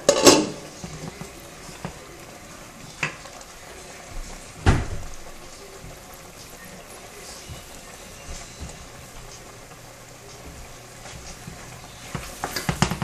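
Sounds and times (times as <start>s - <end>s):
pot lid and utensils clanking: 0.0s - 1.2s.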